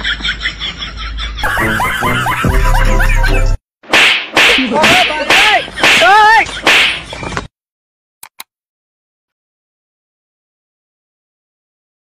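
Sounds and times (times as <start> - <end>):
sharp slapping hits: 3.8 - 7.2.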